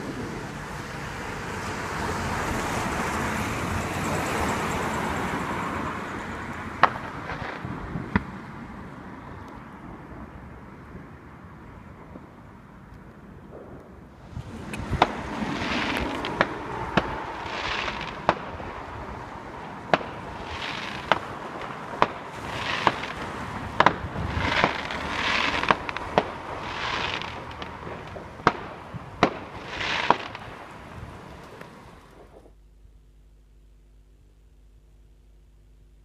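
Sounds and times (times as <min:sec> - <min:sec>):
fireworks bangs: 0:04.2 - 0:08.6, 0:13.4 - 0:32.5
fireworks hissing: 0:14.2 - 0:32.5.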